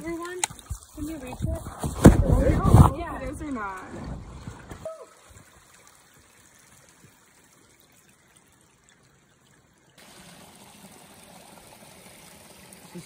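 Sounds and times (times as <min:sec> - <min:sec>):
water trickling in stream: 0:00.0 - 0:13.0.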